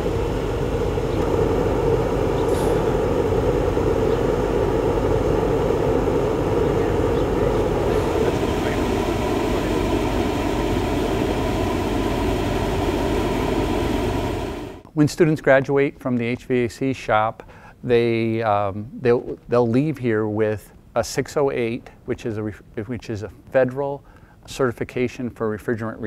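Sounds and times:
oil burner flame roaring: 0.0 - 14.9.

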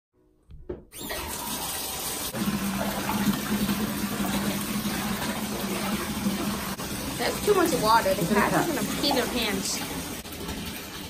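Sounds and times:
tap water running into tub: 1.0 - 11.0.

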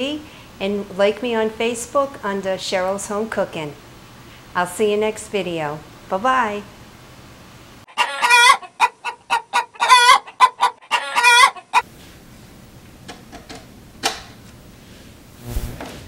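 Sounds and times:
chicken clucking and squawking: 7.9 - 11.8.

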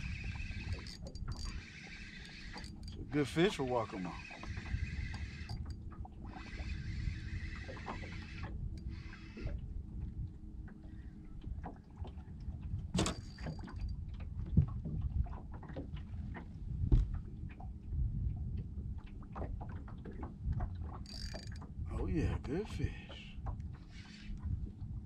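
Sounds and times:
spinning reel cranking: 0.0 - 9.5, 21.0 - 21.6, 23.9 - 24.3
wind rumbling on microphone: 0.0 - 25.0
small clicks: 0.1 - 3.6, 4.2 - 6.9, 21.0 - 21.7.

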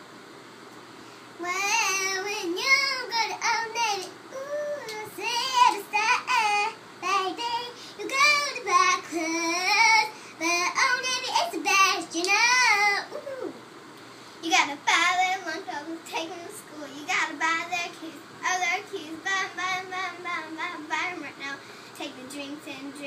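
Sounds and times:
girl singing unaccompanied: 1.4 - 13.6, 14.4 - 23.0.

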